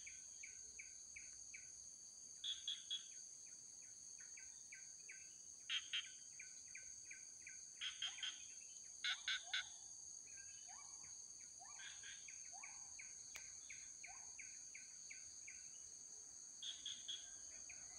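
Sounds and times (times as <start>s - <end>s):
bird chirps: 2.4s - 3.2s, 4.2s - 9.7s, 10.3s - 15.8s, 16.6s - 17.9s.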